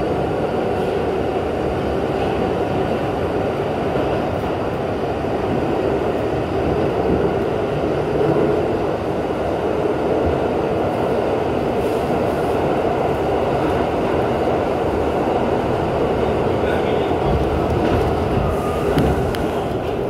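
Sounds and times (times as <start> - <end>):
subway train wheels on rails: 0.0 - 20.0.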